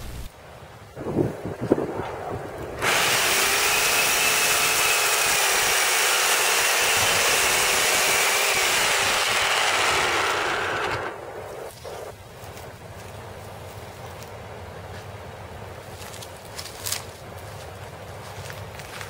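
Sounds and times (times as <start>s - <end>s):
electric chainsaw cutting wood: 2.8s - 11.7s.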